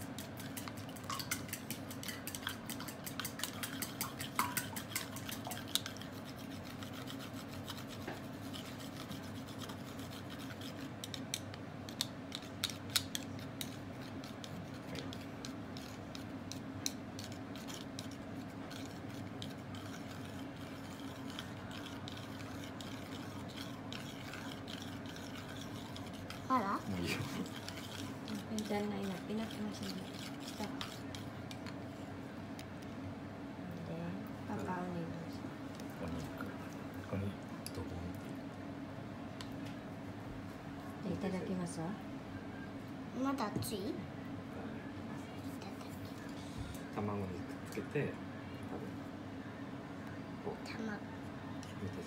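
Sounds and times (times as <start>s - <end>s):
steady low hum: 0.0s - 52.0s
chopsticks clicking against bowl: 11.0s - 15.6s.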